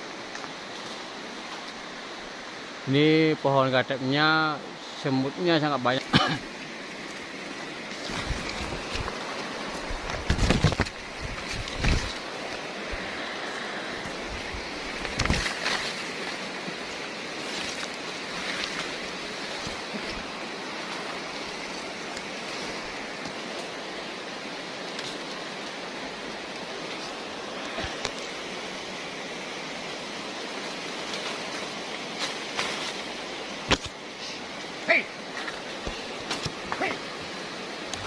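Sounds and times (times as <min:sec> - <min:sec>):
river water rushing: 0:00.0 - 0:38.0
short thumps and rustles: 0:08.0 - 0:12.2.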